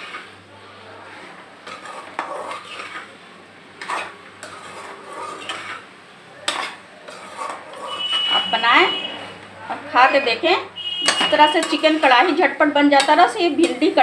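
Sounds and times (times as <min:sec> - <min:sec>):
ladle scraping metal pot: 0:01.6 - 0:03.2, 0:03.8 - 0:09.0, 0:10.8 - 0:14.0
ladle clanking against pot: 0:06.4 - 0:08.3, 0:11.0 - 0:12.1.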